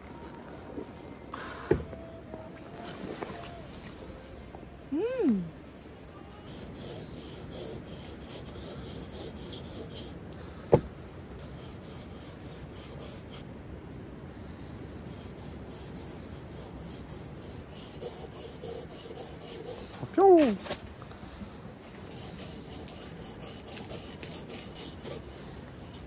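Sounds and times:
knife scraping on whetstone: 15.4 - 20.0, 22.1 - 26.0.

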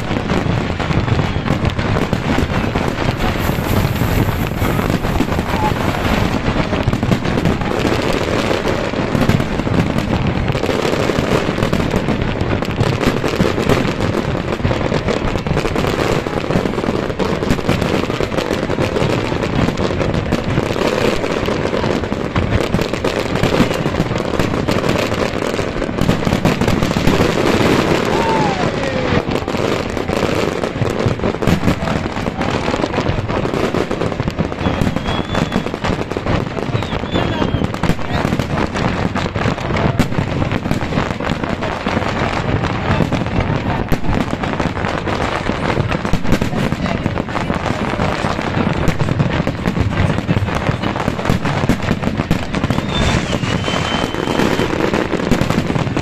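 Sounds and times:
fireworks bursting and crackling: 0.0 - 56.0
falling firework whistle: 0.4 - 10.8, 27.1 - 29.5, 34.4 - 38.5, 51.8 - 56.0.

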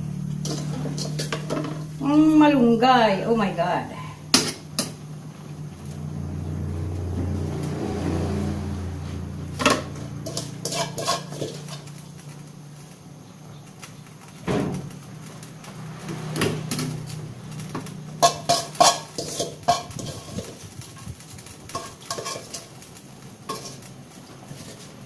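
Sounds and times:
metal ladle scraping cooking pan: 0.3 - 2.0, 7.9 - 12.5, 16.1 - 25.0
steady low drone: 5.2 - 10.6.

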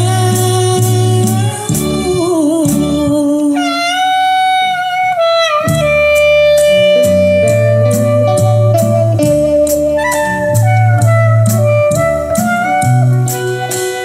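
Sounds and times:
bass: 0.0 - 3.6, 4.7 - 14.0
drums: 0.0 - 3.6, 5.6 - 14.0
melodic lead line: 5.7 - 14.0.

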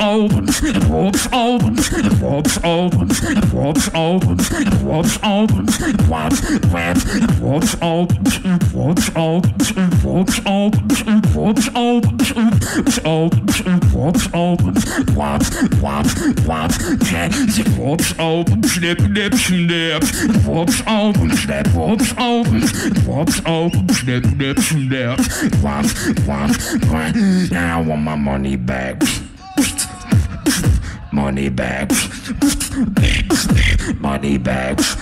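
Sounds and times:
pitched vocal sounds: 0.0 - 35.0
beatboxing snare and hi-hat clicks: 0.2 - 27.1, 29.0 - 30.9, 31.9 - 33.8
hummed bass line: 13.2 - 19.2.

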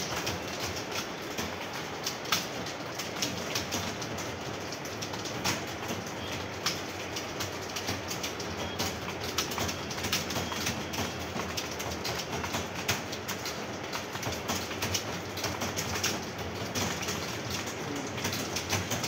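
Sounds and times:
keyboards clattering: 14.3 - 19.0.

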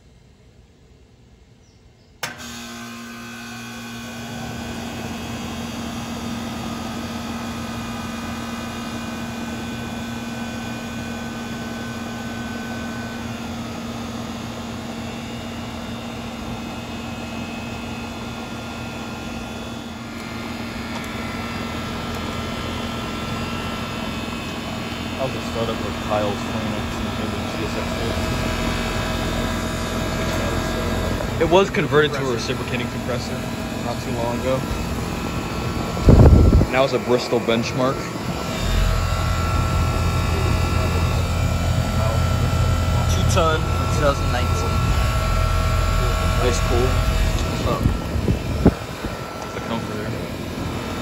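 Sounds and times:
compressor humming: 0.0 - 51.0
air conditioner switch click: 2.2 - 2.4
condenser fan spinning: 2.2 - 51.0.

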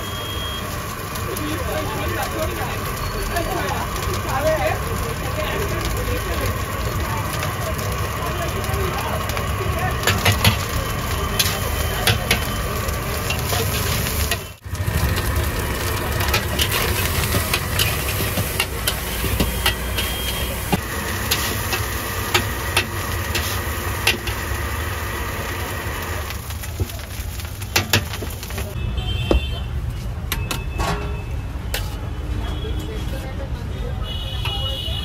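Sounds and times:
sizzling rumble: 0.0 - 28.8
metal spatula scraping wok: 10.0 - 24.4.

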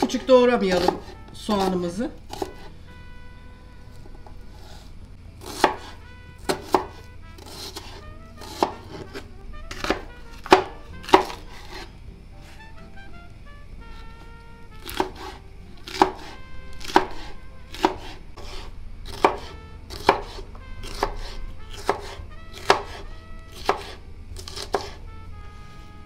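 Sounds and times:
knife chopping on plastic board: 0.0 - 1.7, 2.3 - 2.7, 5.4 - 12.6, 14.8 - 25.0.

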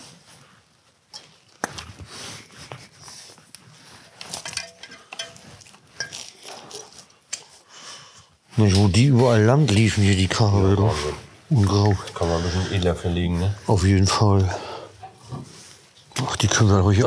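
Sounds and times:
wires clicking and rustling: 3.5 - 7.6.

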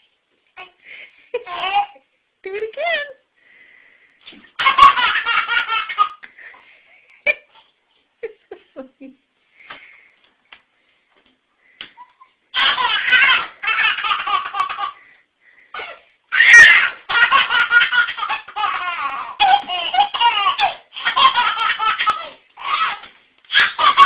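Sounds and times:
baby belly-laughing: 4.5 - 6.2, 12.0 - 15.1, 15.7 - 24.0.

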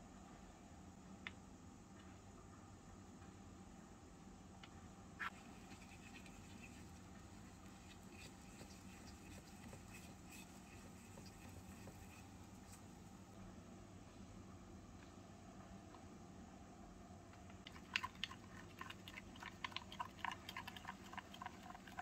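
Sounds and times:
small spoon stirring in steel bowl: 5.2 - 13.1, 17.5 - 22.0.

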